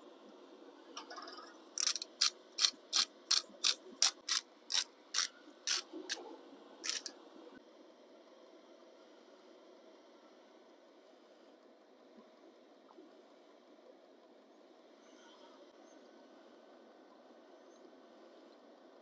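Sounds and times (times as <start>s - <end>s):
salt grinder ratcheting: 1.4s - 6.2s, 6.8s - 7.1s.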